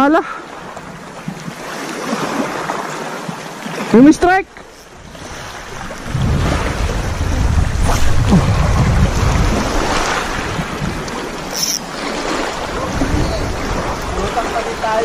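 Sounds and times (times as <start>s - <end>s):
sea water: 0.0s - 15.0s
wind buffeting microphone: 4.8s - 15.0s.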